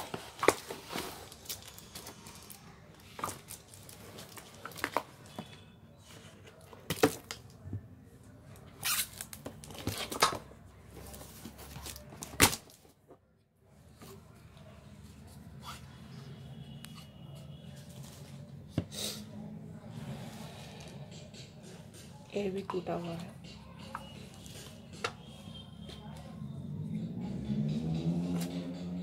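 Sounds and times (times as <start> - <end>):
cardboard cracks and snaps: 11.8 - 13.0.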